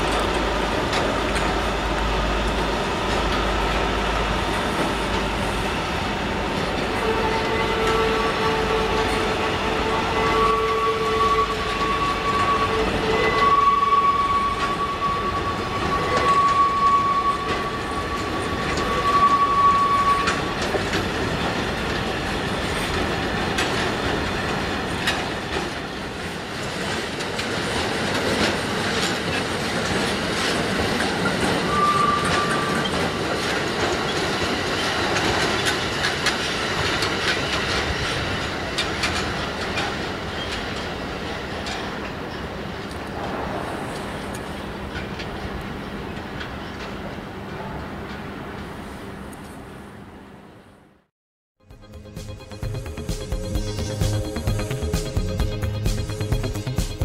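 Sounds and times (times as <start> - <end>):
steady high squeal: 0.0 - 21.7
wheels clicking over rail joints: 0.0 - 48.7
freight train rolling past: 0.0 - 51.0, 51.7 - 57.0.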